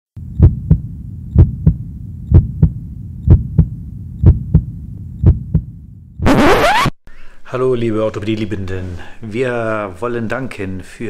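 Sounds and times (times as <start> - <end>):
heartbeat thumps: 0.2 - 6.3
steady low hum: 0.2 - 6.3.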